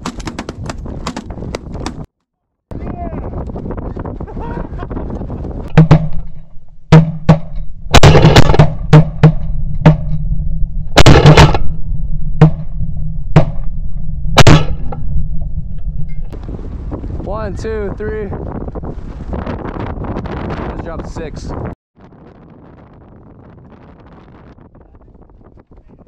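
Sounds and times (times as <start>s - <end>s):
shotgun blasts: 6.9s - 10.2s, 11.0s - 11.8s, 14.4s - 14.9s.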